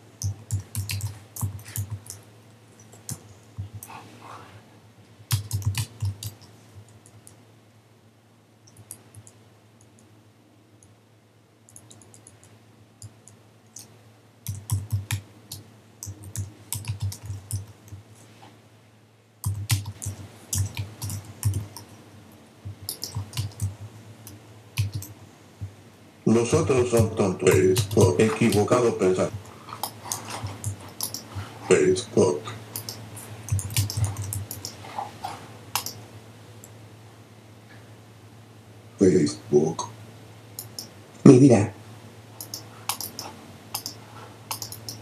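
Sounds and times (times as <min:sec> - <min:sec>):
keyboard typing clicks: 0:00.2 - 0:02.2, 0:05.3 - 0:07.4, 0:08.7 - 0:10.1, 0:11.7 - 0:18.0, 0:19.4 - 0:21.9, 0:22.6 - 0:25.7, 0:27.0 - 0:28.7, 0:29.3 - 0:31.5, 0:32.7 - 0:34.8, 0:35.7 - 0:36.0, 0:40.6 - 0:41.0, 0:42.4 - 0:45.0.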